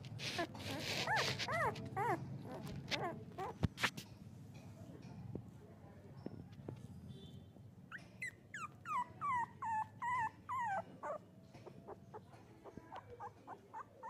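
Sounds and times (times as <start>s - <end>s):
puppy squeaks: 0.1s - 3.7s, 7.9s - 14.0s
puppy whimpering cries: 0.2s - 3.6s, 7.9s - 14.0s.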